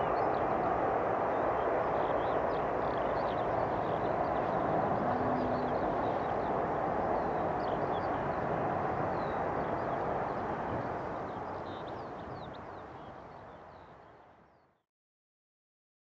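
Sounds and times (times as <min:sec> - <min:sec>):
jet engine roar: 0:00.0 - 0:12.9
small birds chirping: 0:01.9 - 0:14.7.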